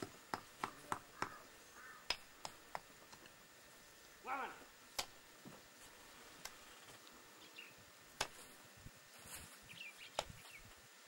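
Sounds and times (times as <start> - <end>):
faint bird chirps: 1.1 - 2.1.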